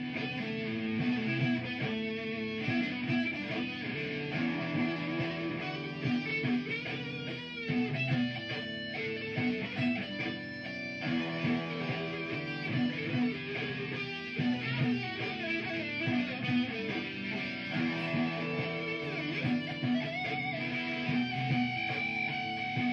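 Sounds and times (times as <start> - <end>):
electric guitar solo: 0.0 - 22.9
looped rhythm part: 0.0 - 22.9.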